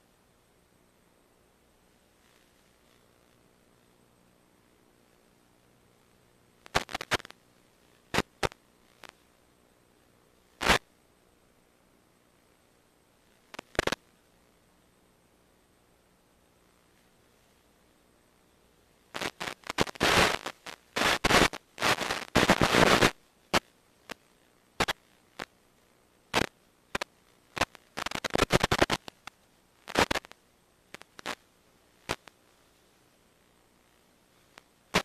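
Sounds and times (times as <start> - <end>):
crackling static: 0.0 - 35.0
sharp electrical clicks: 6.6 - 7.4, 8.0 - 9.2, 10.6 - 10.9, 13.5 - 14.0, 19.1 - 25.6, 26.3 - 31.4, 32.0 - 32.4, 34.5 - 35.0.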